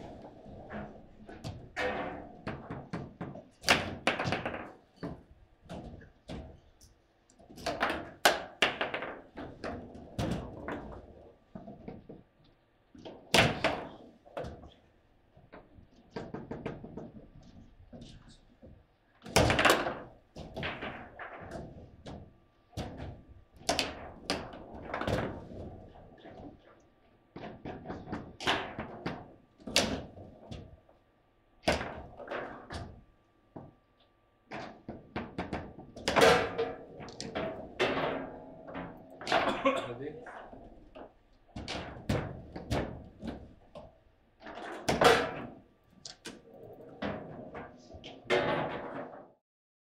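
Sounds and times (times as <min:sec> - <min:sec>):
foosball ball knocks and bangs: 0:00.1 - 0:06.5, 0:07.5 - 0:11.0, 0:13.2 - 0:14.7, 0:19.3 - 0:26.5, 0:27.4 - 0:30.8, 0:31.6 - 0:33.0, 0:34.5 - 0:39.6, 0:40.3 - 0:45.6, 0:47.0 - 0:49.3
foosball rods knocking: 0:07.5 - 0:11.0, 0:34.5 - 0:39.6, 0:40.3 - 0:49.3.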